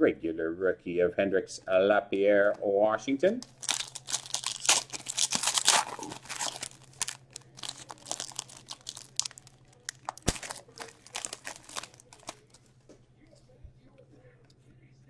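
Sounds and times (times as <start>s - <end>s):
foil wrappers crinkling and tearing: 3.4s - 12.6s.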